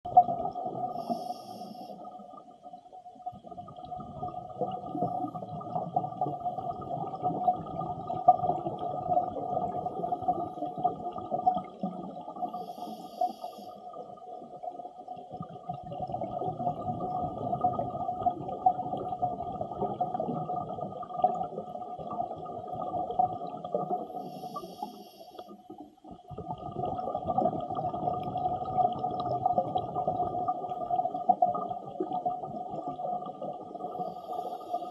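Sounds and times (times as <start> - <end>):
exhaled bubbles rumbling: 0.1 - 1.3, 2.0 - 12.8, 13.8 - 24.9, 25.7 - 34.9
regulator inhalation hiss: 1.0 - 2.0, 12.5 - 13.8, 24.2 - 25.5, 34.0 - 34.9.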